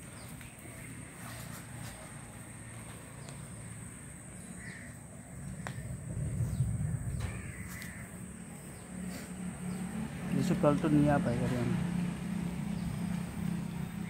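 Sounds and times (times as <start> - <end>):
crow cawing: 4.5 - 5.8, 7.2 - 8.4
low rumble: 5.2 - 10.1.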